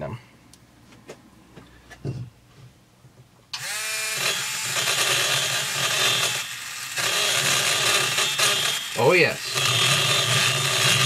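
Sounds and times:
burr grinding metal: 3.6s - 11.0s
dental handpiece whining: 3.6s - 11.0s.

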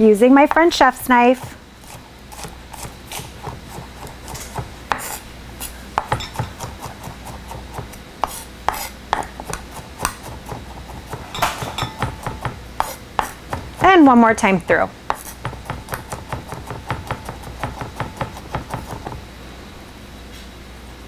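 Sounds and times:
knife chopping on wooden board: 1.4s - 5.2s, 6.0s - 13.9s, 15.1s - 19.2s.

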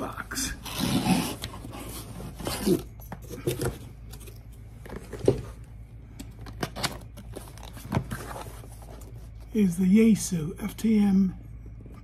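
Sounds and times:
cardboard box rustling and scraping: 0.6s - 5.6s, 7.2s - 9.4s.

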